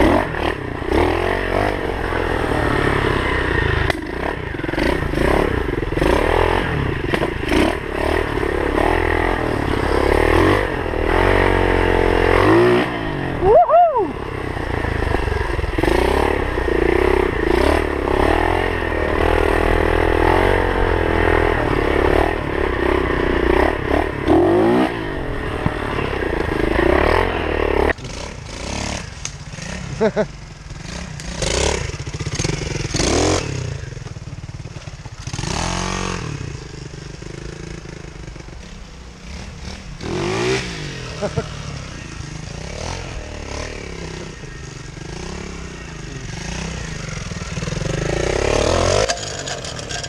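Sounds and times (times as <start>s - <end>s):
distant pit bike engine: 0.0s - 50.0s
pit bike engine revving: 0.0s - 50.0s
bike rattling: 14.2s - 50.0s.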